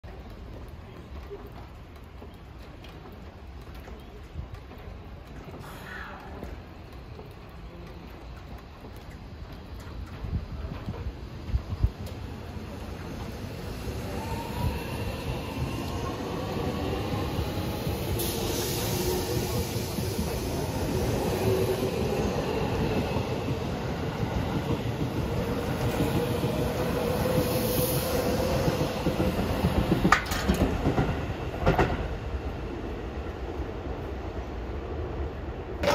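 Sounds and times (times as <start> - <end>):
train wheels rumbling: 0.0 - 35.9
wheels clacking over rail joints: 28.4 - 32.2.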